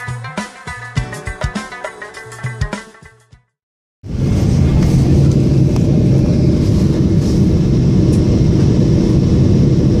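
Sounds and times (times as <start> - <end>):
jet engines and airflow roaring: 4.0 - 10.0.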